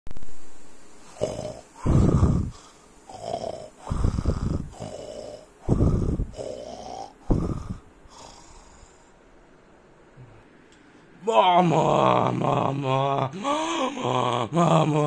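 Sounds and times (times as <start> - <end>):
person snoring: 1.0 - 9.1, 11.3 - 15.0.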